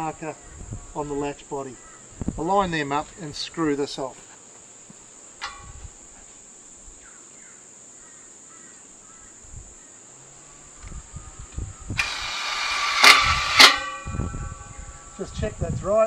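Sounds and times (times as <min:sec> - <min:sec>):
crickets chirping: 0:00.0 - 0:16.0
screw gun driving screw into metal: 0:12.0 - 0:13.9.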